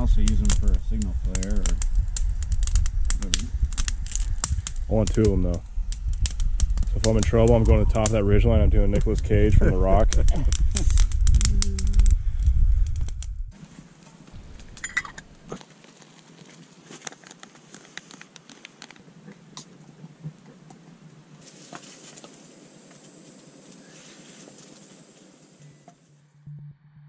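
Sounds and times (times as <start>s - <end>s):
low rushing noise: 0.0s - 13.6s
campfire crackling and popping: 0.0s - 25.6s.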